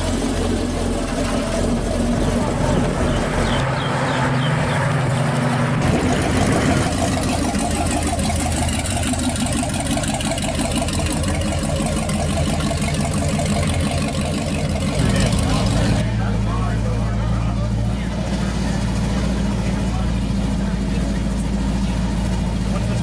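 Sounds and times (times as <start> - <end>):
car engine pulling away: 0.0 - 23.0
car driving past: 2.3 - 7.7.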